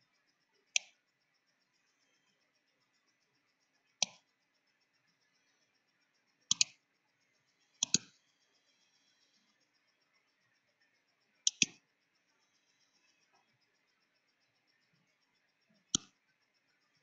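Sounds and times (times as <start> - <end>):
computer mouse clicks: 0.7 - 1.0, 4.0 - 4.3, 6.4 - 6.8, 7.6 - 9.4, 11.4 - 11.8, 15.8 - 16.2.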